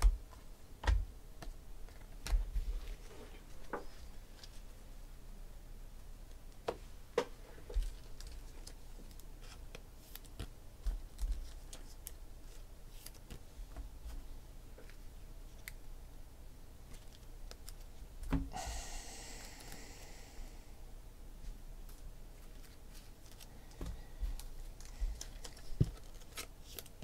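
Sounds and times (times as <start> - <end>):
cards scraping rustle: 24.7 - 27.0.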